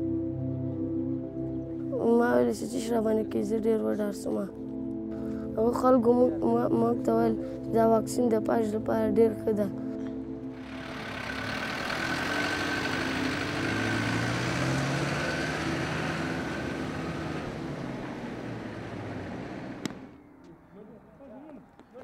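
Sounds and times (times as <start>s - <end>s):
truck engine and tyres passing: 10.5s - 20.8s.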